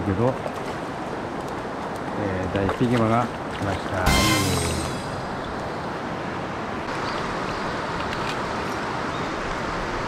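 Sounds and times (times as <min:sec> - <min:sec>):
river current rushing: 0:03.3 - 0:10.0.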